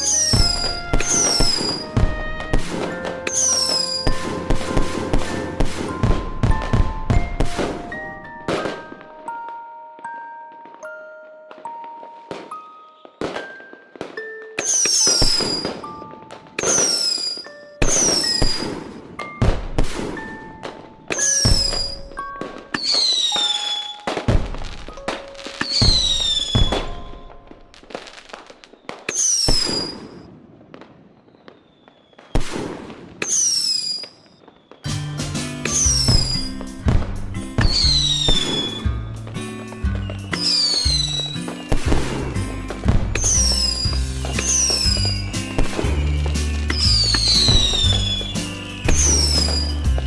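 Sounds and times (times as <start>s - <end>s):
firework whistle sweeping down: 0.0s - 6.1s, 14.6s - 15.9s, 16.6s - 19.0s, 21.1s - 22.1s, 22.7s - 24.4s, 25.6s - 27.4s, 28.7s - 30.3s, 33.2s - 36.6s, 37.6s - 39.0s, 39.9s - 50.0s
fireworks banging: 0.0s - 10.9s, 11.5s - 50.0s
bell-like notes: 0.0s - 27.9s, 39.9s - 49.8s.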